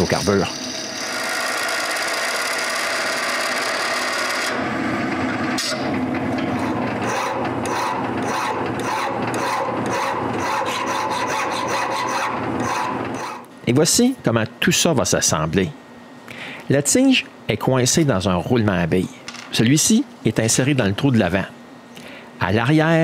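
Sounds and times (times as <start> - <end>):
lathe cutting brass: 0.0 - 4.7
hand file rasping on brass: 7.1 - 12.2.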